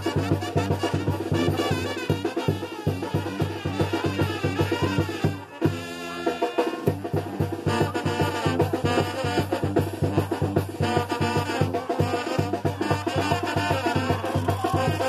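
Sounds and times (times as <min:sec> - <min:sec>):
brass band playing dance tune: 0:00.0 - 0:15.0.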